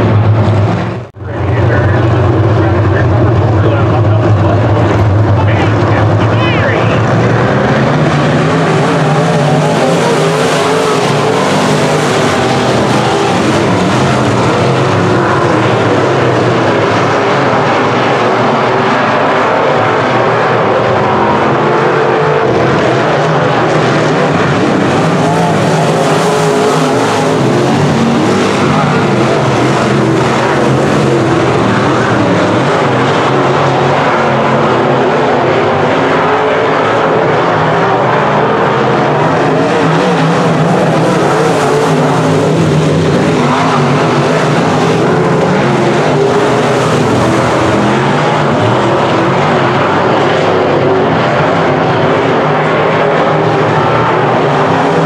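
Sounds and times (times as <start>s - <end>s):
race car engines roaring: 0.0s - 55.0s.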